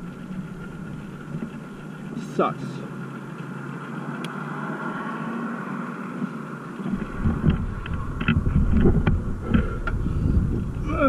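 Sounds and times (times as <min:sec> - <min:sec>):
steady background hum: 0:00.0 - 0:04.4, 0:06.5 - 0:11.0
wind buffeting microphone: 0:06.8 - 0:11.0.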